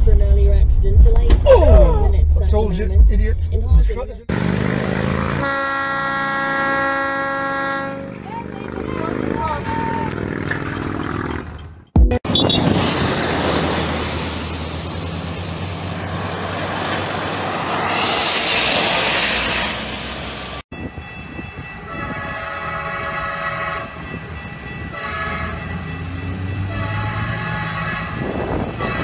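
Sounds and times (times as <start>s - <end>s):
train horn blasts: 5.4s - 8.2s, 21.8s - 29.0s
rushing noise: 12.3s - 20.6s.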